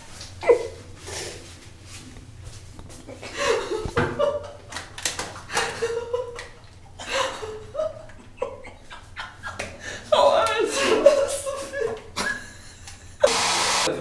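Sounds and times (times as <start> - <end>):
people laughing: 3.1 - 4.8, 5.5 - 13.3.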